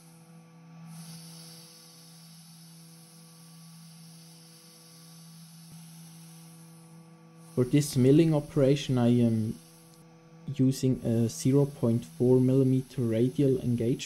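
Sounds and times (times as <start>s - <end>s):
mill machine humming: 0.0s - 14.0s.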